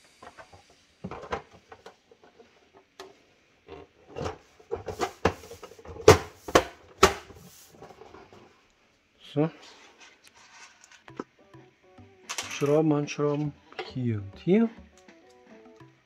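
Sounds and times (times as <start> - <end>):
plastic panels clicking and knocking: 3.7 - 7.3.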